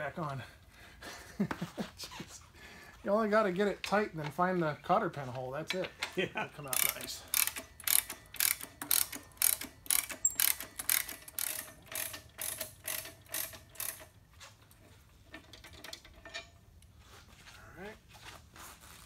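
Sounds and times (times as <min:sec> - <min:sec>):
ratchet wrench clicking: 0:06.7 - 0:14.2.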